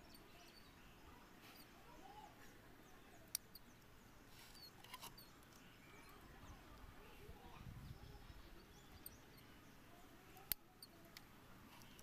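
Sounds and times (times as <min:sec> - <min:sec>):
faint bird chirps: 0:00.0 - 0:12.0
faint clicks: 0:03.2 - 0:03.8, 0:10.3 - 0:12.0.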